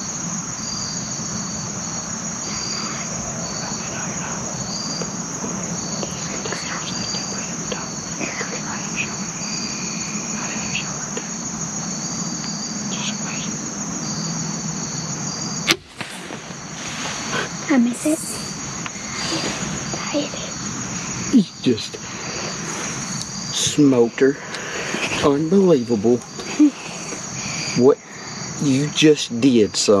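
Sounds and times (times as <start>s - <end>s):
insects buzzing and chirping: 0.0s - 30.0s.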